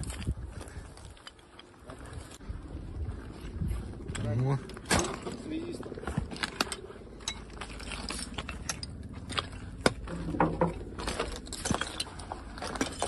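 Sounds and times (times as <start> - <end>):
footsteps crunching over rubble: 0.0 - 13.0
debris clicking and scraping: 6.1 - 13.0.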